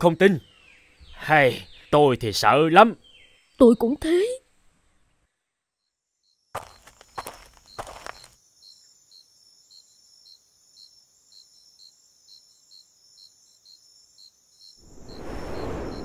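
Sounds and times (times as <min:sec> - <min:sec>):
crickets chirping: 0:06.2 - 0:16.0
gust of wind: 0:14.8 - 0:16.0.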